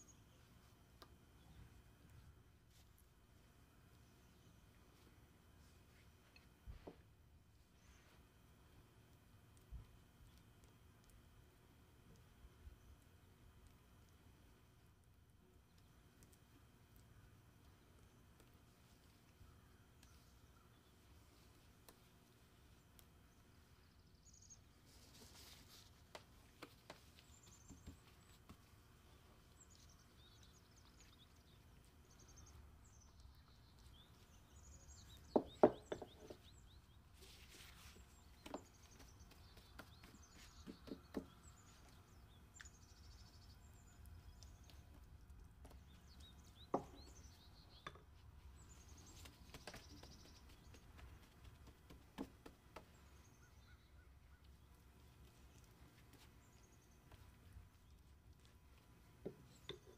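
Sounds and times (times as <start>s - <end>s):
faint birds chirping: 0.0s - 59.9s
dough knocking on wooden board: 35.4s - 36.4s, 39.8s - 41.4s.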